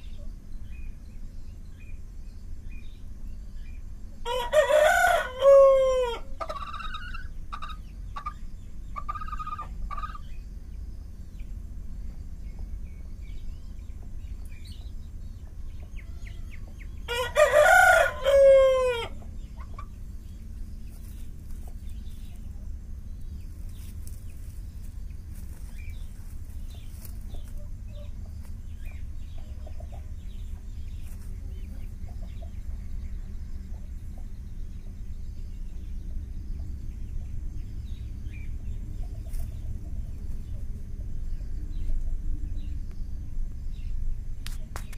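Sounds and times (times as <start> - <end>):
low hum: 0.0 - 44.9
rooster crowing: 4.2 - 7.2, 15.9 - 19.3
chicken clucking: 5.4 - 10.3, 13.5 - 34.5.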